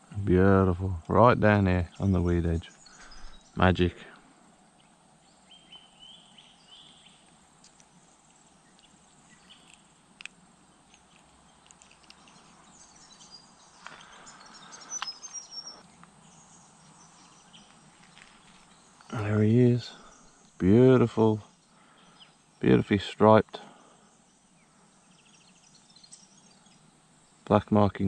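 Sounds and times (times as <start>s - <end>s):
rustle: 0.0s - 28.0s
high bird chirps: 1.9s - 3.6s, 10.9s - 20.7s
small clicks: 7.2s - 8.9s, 9.6s - 12.6s.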